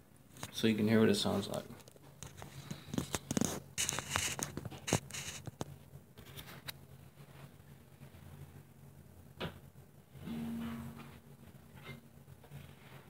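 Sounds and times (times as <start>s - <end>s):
low steady hum: 0.0s - 13.0s
camera handling rustling: 1.9s - 5.6s.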